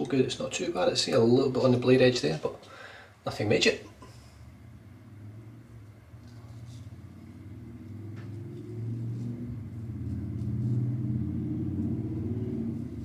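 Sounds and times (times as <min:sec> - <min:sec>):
low engine-like rumble: 0:04.0 - 0:13.0
razor scraping stubble: 0:08.3 - 0:11.9.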